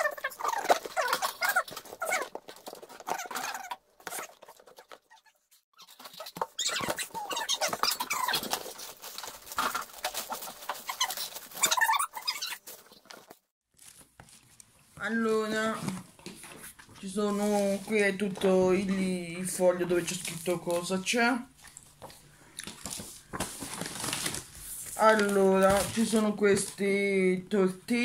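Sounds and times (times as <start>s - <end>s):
squeaky sounds: 0.0s - 8.9s, 9.5s - 13.4s
cardboard scraping and rustling: 5.9s - 14.5s, 22.8s - 26.7s.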